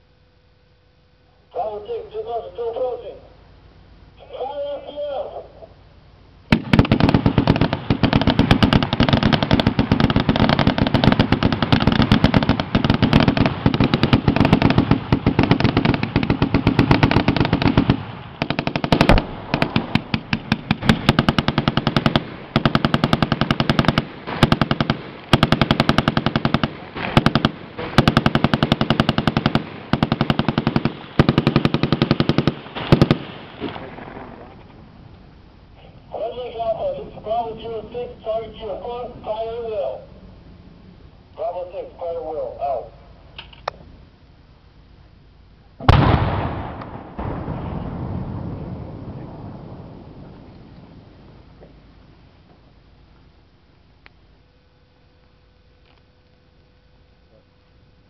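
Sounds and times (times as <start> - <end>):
automatic machine-gun fire: 6.5 - 34.4, 45.8 - 47.3.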